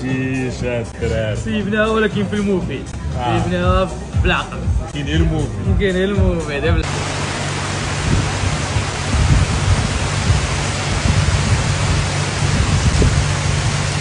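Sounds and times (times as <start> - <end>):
heavy rain pouring: 6.8 - 14.0
low rumble: 6.8 - 14.0.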